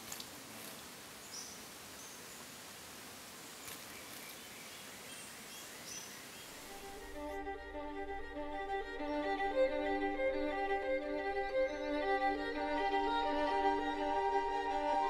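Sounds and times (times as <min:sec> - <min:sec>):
forest ambience hiss: 0:00.0 - 0:15.0
string music: 0:06.7 - 0:15.0.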